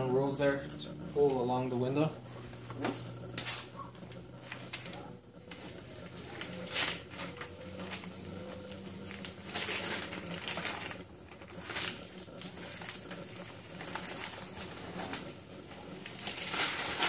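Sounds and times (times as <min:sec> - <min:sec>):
tape rustling and crinkling: 0:02.2 - 0:17.0.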